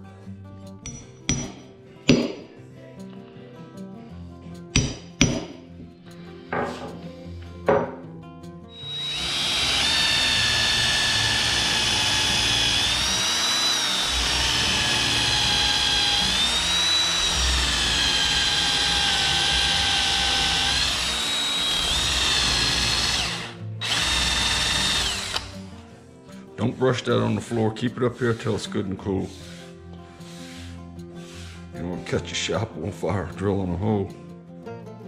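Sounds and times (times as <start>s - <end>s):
cordless drill whining: 8.7s - 25.7s.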